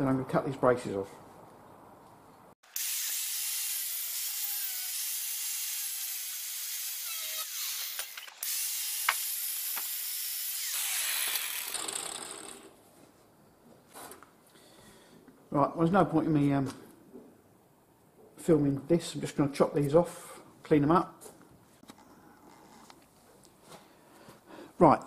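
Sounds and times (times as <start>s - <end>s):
power tool cutting metal tube: 2.7s - 12.7s.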